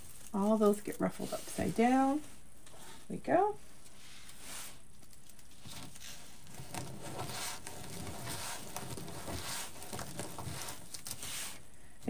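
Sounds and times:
mesh rustling and crinkling: 0.0 - 11.8.

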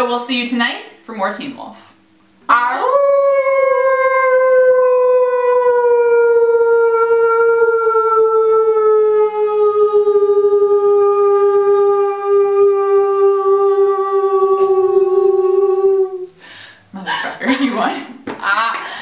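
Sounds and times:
women imitating wolf howl: 2.5 - 16.4.

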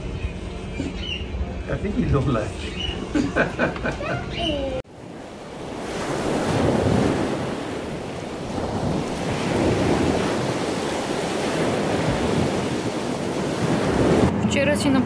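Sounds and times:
wind blowing across microphone: 4.9 - 15.0.

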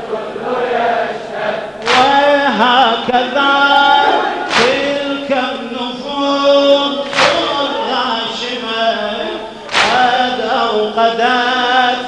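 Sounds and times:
men chanting a lament: 0.0 - 12.0
hands slapping bare chests: 1.9 - 2.2, 4.5 - 4.9, 7.1 - 7.6, 9.7 - 10.1.

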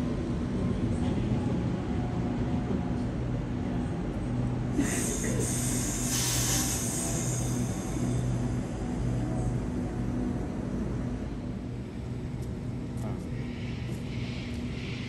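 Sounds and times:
electric train humming: 0.0 - 15.0
hiss: 4.8 - 8.8.

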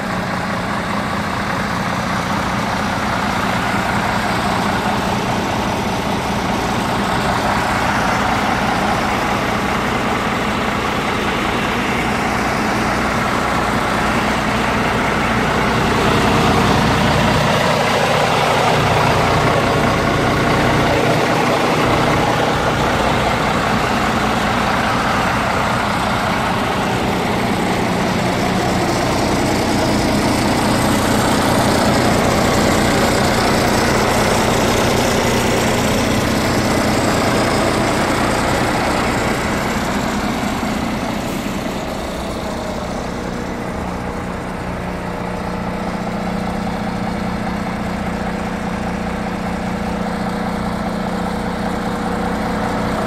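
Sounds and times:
truck diesel engine idling: 0.0 - 53.0.

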